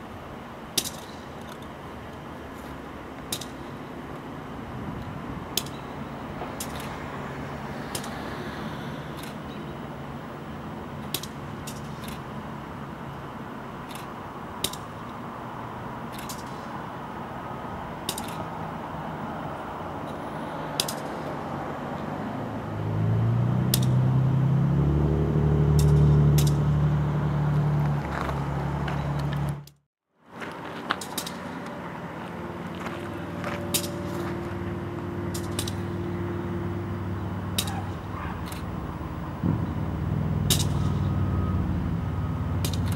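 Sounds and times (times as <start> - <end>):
sharp metal clanks: 25.7 - 26.6, 33.6 - 34.2, 35.3 - 36.1, 40.4 - 41.1
diesel loader engine running: 30.8 - 42.9.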